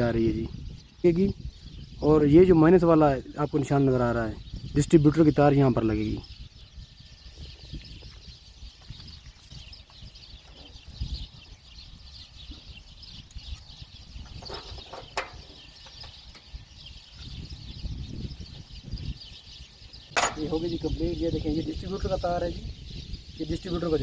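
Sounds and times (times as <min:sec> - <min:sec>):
birds chirping: 0:00.0 - 0:24.0.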